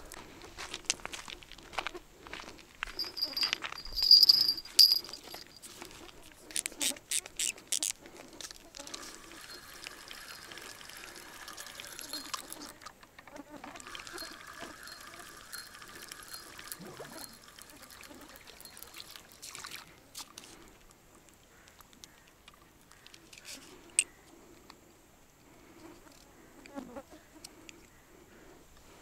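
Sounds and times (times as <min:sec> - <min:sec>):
river water trickling: 0:03.0 - 0:05.7, 0:08.9 - 0:13.0, 0:13.8 - 0:21.0.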